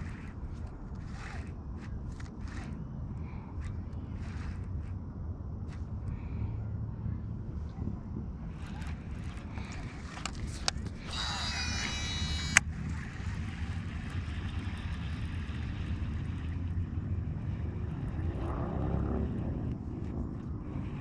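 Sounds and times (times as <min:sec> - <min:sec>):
fishing reel whirring: 0:00.0 - 0:02.9, 0:03.6 - 0:05.0, 0:08.5 - 0:16.8
low rumble: 0:00.0 - 0:21.0.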